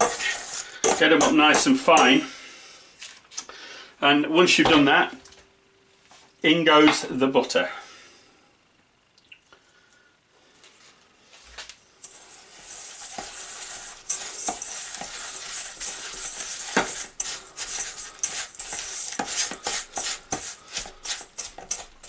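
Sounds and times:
spatula scraping metal bowl: 0.0 - 2.3, 12.0 - 22.0
spatula mixing crumbs crackly hiss: 0.0 - 3.5, 10.4 - 22.0.

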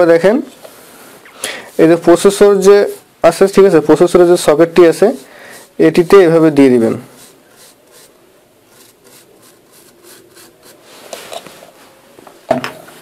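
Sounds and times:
small brush scrubbing: 4.4 - 6.2, 6.8 - 11.8.

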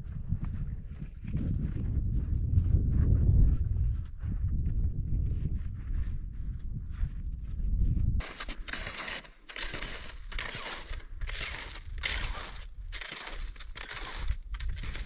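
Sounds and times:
footsteps crunching on rough ground: 5.2 - 15.0.

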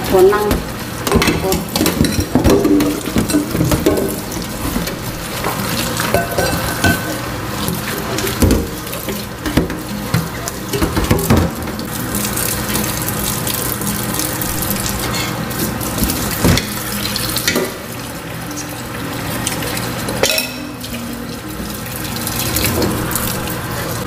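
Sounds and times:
dishes being scrubbed: 0.0 - 24.0
tap water running into sink: 0.0 - 24.0
pots knocking against sink: 0.2 - 13.0, 14.6 - 18.1.

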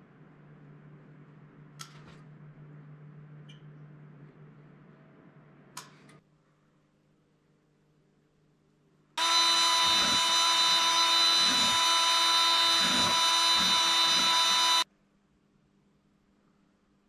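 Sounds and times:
cordless drill motor whine: 9.2 - 14.8.

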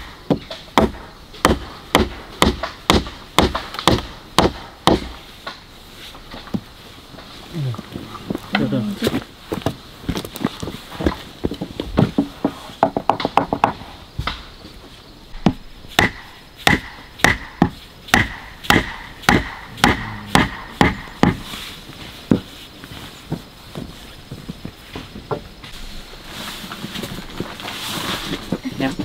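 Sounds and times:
blade chopping wood: 0.0 - 5.6, 15.4 - 21.5.

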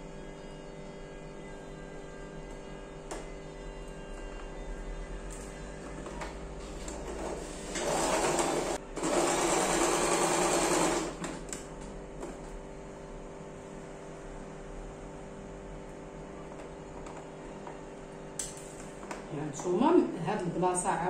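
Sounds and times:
sewing machine stitching: 6.9 - 11.4.

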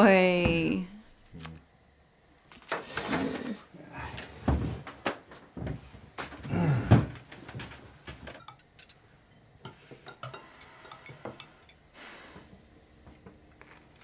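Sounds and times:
cutlery clinking on plates: 8.3 - 11.5.

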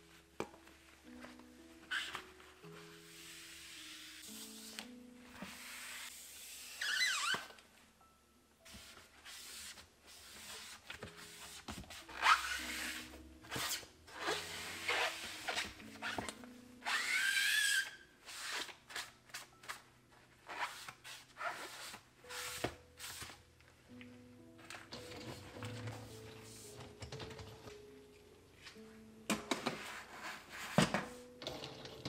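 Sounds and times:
squeaks: 6.8 - 7.6.

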